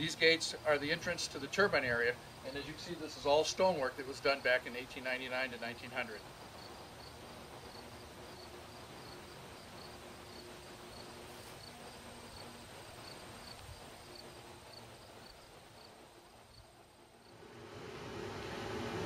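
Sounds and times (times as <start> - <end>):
low outdoor hiss: 0.0 - 19.0
crickets chirping: 6.1 - 19.0.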